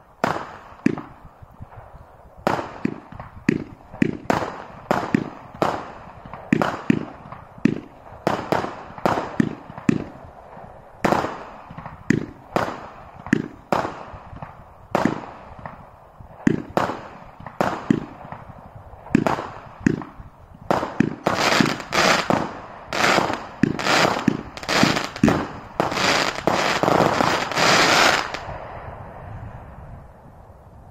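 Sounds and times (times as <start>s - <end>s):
firework barrage bangs: 19.1s - 28.6s.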